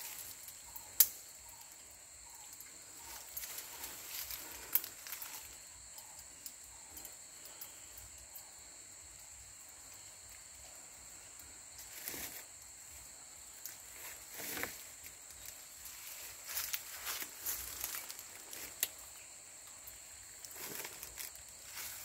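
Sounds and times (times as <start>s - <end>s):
insects droning: 0.0s - 22.0s
net rustling in hands: 13.8s - 18.9s.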